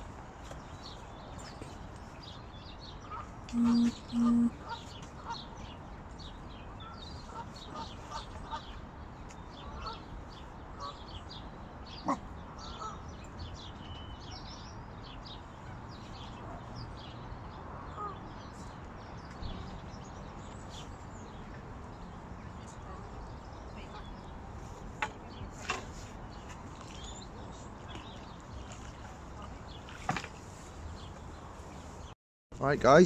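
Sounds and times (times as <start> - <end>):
birds chirping: 0.8 - 5.5
duck calls: 3.6 - 4.5.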